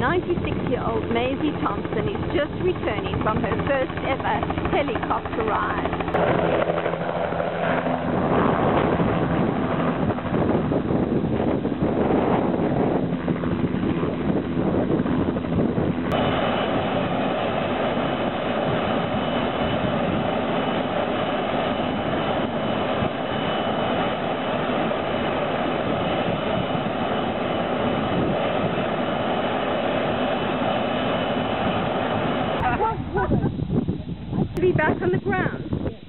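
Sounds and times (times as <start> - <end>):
helicopter engine whine: 0.0 - 36.0.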